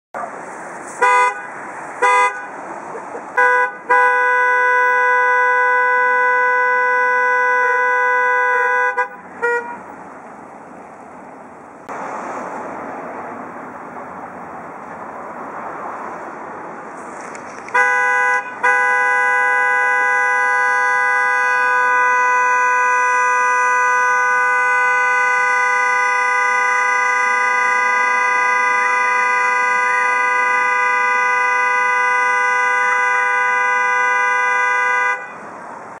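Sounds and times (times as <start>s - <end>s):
car horn honking: 0.9s - 2.6s, 3.3s - 9.9s, 17.6s - 35.5s.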